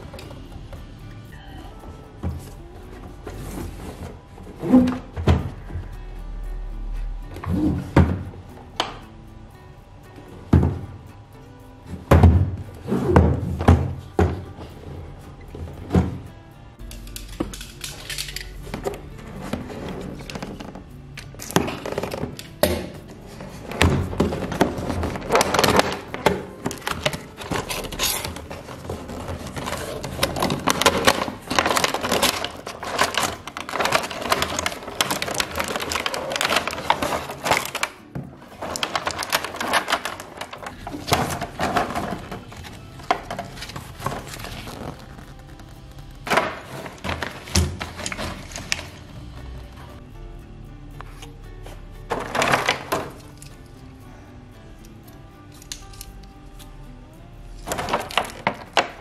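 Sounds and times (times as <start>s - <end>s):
cardboard and plastic packaging handled: 23.2s - 49.1s, 51.1s - 53.5s, 57.6s - 59.0s
paper sheet rustling: 23.3s - 49.0s.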